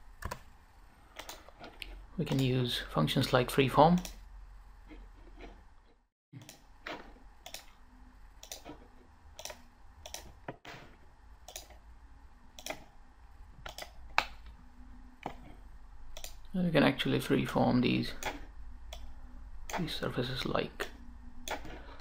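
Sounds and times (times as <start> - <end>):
faint steady hum: 0.0 - 22.0
computer mouse clicking: 0.2 - 0.5, 1.2 - 2.5, 7.4 - 7.8, 8.4 - 8.8, 9.4 - 10.4, 11.4 - 11.8, 12.6 - 12.9, 13.6 - 14.6, 16.1 - 16.5, 20.8 - 21.8.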